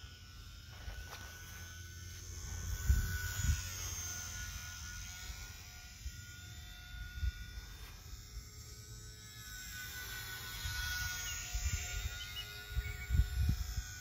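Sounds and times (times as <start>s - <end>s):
model plane motor whine: 0.0s - 14.0s
wind rumbling on microphone: 2.4s - 3.9s, 10.6s - 14.0s.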